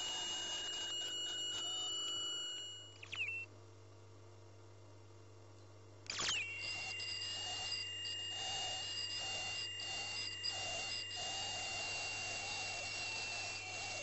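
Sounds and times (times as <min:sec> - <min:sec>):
ultrasonic scaler whine: 0:00.0 - 0:03.5, 0:06.1 - 0:14.0.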